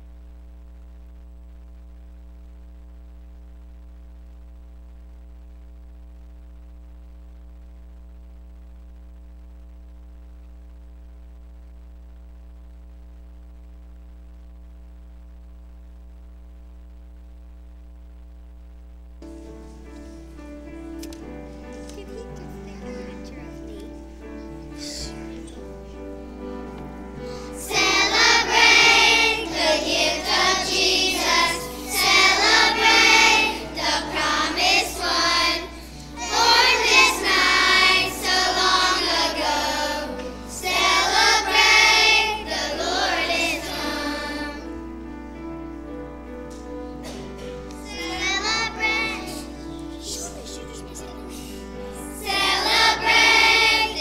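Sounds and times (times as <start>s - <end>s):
children's choir singing: 27.4s - 44.8s, 47.8s - 50.5s, 51.9s - 54.0s.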